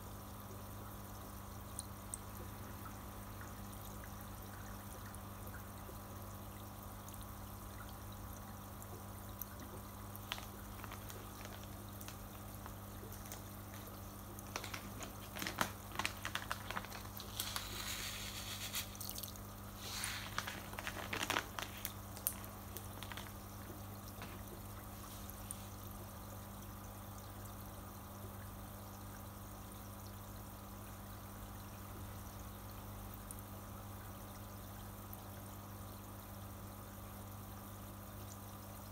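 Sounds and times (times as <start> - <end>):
filter low hum: 0.0 - 38.9
water trickling into fish tank: 0.0 - 38.9
fish food pellets rattling: 9.5 - 26.0.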